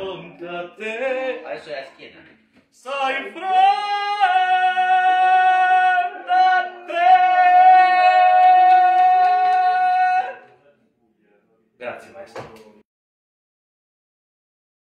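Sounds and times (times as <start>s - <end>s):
voices singing long notes: 2.9s - 10.5s.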